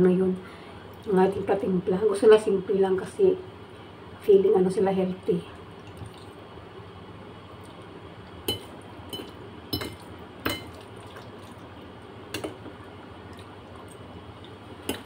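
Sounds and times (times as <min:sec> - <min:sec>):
eating noises: 0:10.0 - 0:12.0, 0:13.2 - 0:14.6.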